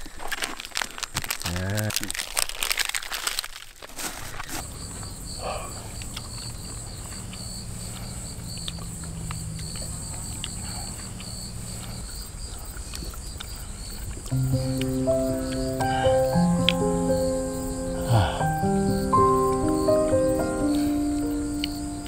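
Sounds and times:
insects trilling: 0:04.6 - 0:22.0
pulsing insect note: 0:14.3 - 0:22.0.

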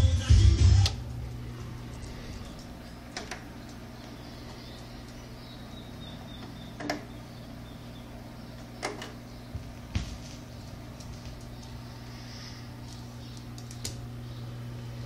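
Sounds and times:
low mains hum: 0:00.0 - 0:15.0.

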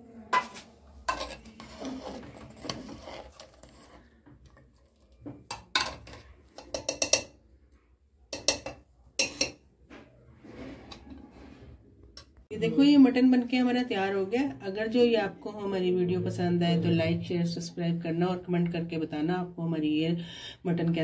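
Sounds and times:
ladle scraping metal pot: 0:00.3 - 0:07.3, 0:08.3 - 0:09.6, 0:10.4 - 0:11.8.

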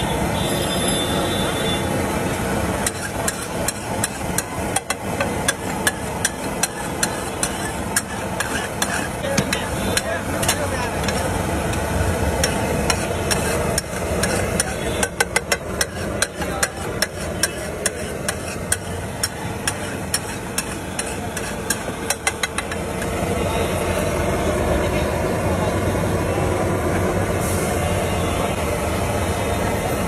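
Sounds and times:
street noise: 0:00.0 - 0:30.0
metal spatula scraping on griddle: 0:02.6 - 0:23.2.

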